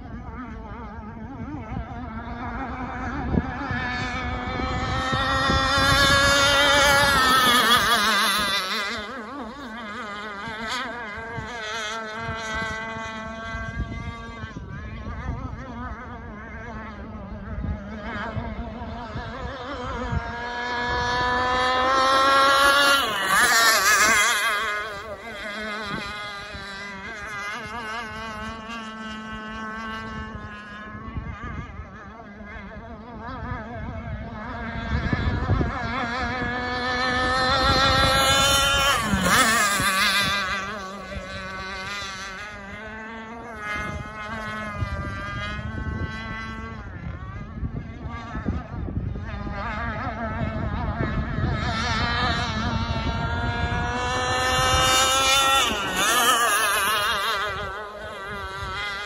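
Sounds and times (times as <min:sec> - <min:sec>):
rc boat motor buzzing: 0:00.0 - 0:59.0.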